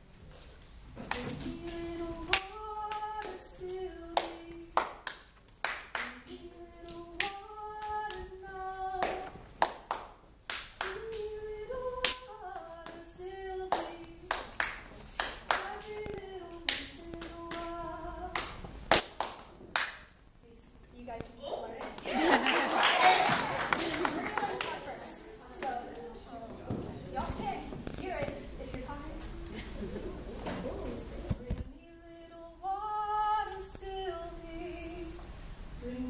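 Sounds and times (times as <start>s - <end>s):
sharp hand claps: 9.0s - 11.2s, 18.4s - 20.1s.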